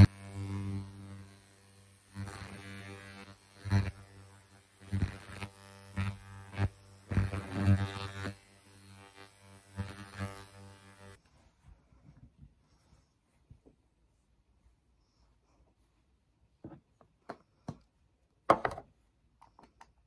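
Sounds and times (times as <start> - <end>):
electric facial device buzzing: 0.0 - 11.2.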